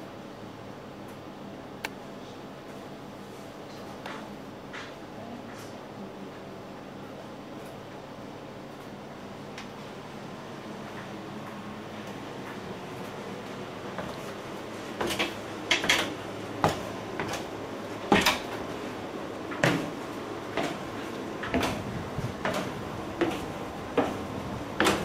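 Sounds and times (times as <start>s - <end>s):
footsteps on wooden stairs: 12.4s - 18.8s, 19.5s - 25.0s.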